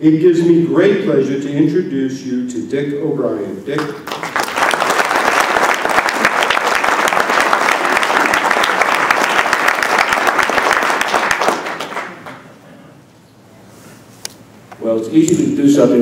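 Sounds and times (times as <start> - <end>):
audience applauding: 3.8 - 12.5.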